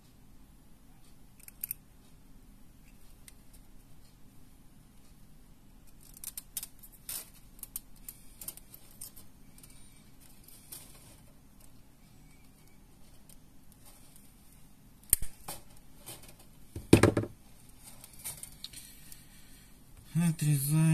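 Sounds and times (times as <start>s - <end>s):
pliers clicking on wire: 1.4s - 1.8s.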